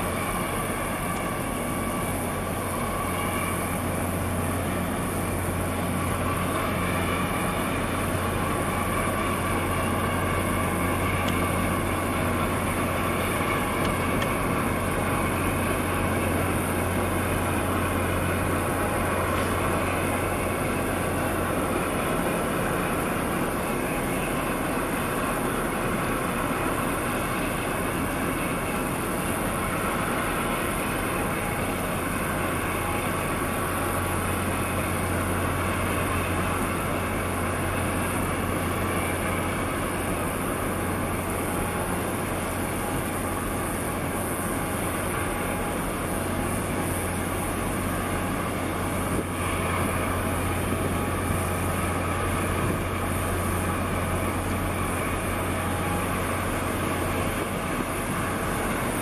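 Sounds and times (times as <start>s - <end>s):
ship diesel engines droning: 0.0s - 59.0s.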